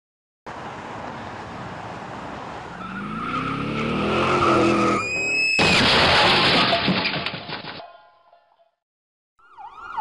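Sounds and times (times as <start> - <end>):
car tyres squealing: 2.7 - 6.0
loud car crash: 4.2 - 7.8.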